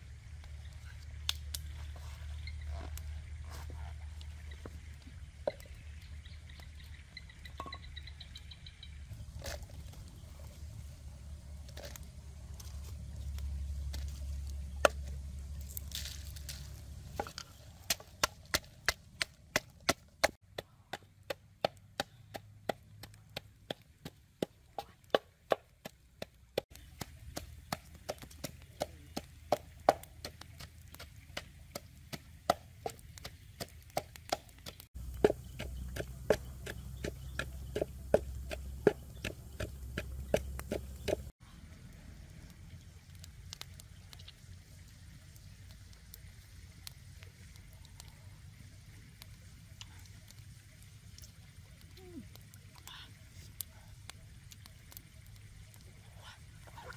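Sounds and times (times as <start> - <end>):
wooden pestle pounding in mortar: 32.5 - 41.3.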